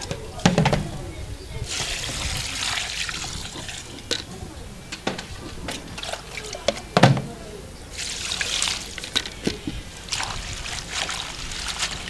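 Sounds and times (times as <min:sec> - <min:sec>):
thump: 0:00.4 - 0:00.9, 0:07.0 - 0:07.3
water splashing in a basin: 0:01.6 - 0:04.3, 0:05.0 - 0:07.3, 0:07.9 - 0:12.0.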